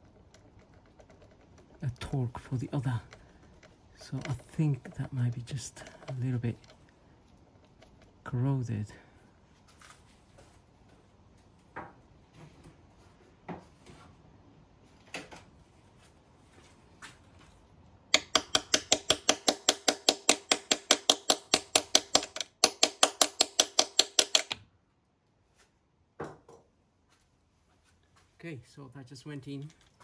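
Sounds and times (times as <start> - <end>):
hammer tapping on metal: 18.1 - 24.6.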